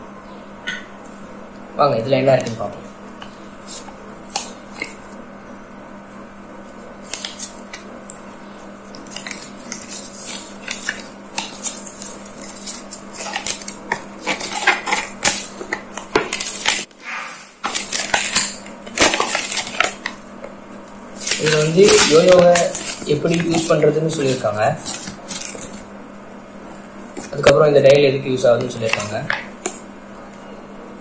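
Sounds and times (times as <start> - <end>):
paper leaflet crinkling: 7.0 - 7.8, 8.6 - 16.9, 17.6 - 25.9, 28.5 - 29.8.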